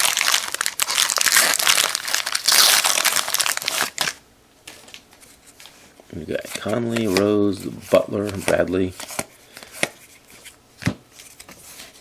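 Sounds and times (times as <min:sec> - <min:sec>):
plastic wrapper crinkling: 0:00.0 - 0:05.0.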